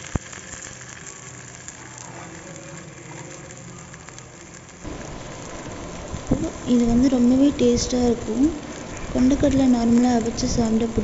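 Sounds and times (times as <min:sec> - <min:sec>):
cutlets sizzling in a pan: 0:00.0 - 0:11.0.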